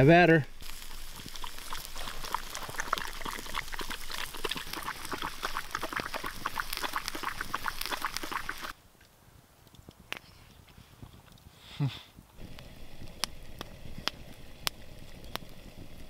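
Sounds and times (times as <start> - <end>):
fish sizzling in a pan: 0.6 - 8.7, 12.4 - 16.0.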